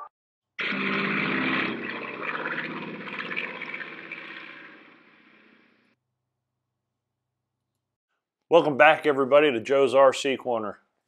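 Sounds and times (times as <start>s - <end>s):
propeller airplane engine drone: 0.6s - 5.6s.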